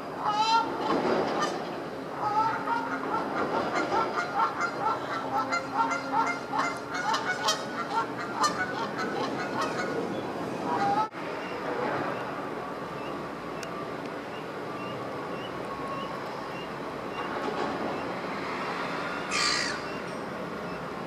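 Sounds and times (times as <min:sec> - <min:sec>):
geese honking: 0:02.2 - 0:10.0, 0:10.7 - 0:11.1.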